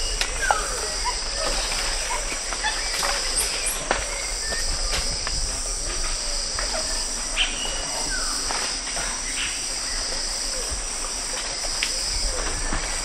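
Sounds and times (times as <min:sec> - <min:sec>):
insects droning: 0:00.0 - 0:13.0
snaps of food and twigs: 0:00.1 - 0:06.8.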